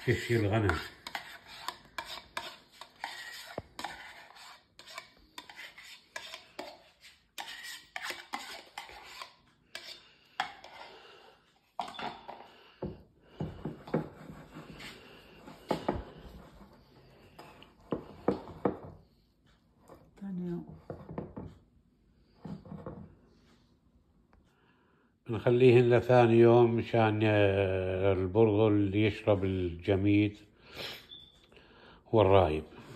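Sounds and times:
spoon scraping plastic tub: 0:00.0 - 0:19.1.

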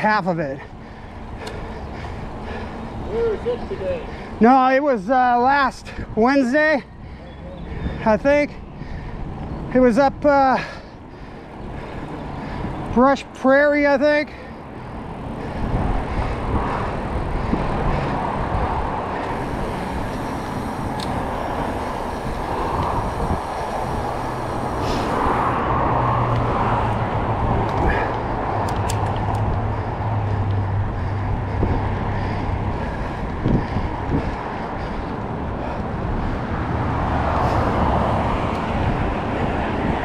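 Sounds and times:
road traffic noise: 0:00.0 - 0:40.0
passing vehicle engine hum: 0:14.4 - 0:40.0
faint clicks: 0:19.2 - 0:25.3.

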